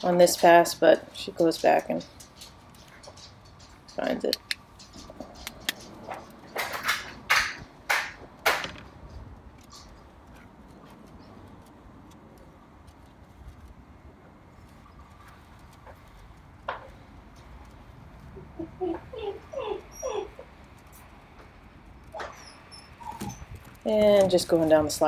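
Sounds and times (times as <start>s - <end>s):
dog paws scuffing on metal deck: 0.0s - 11.7s, 19.8s - 25.0s.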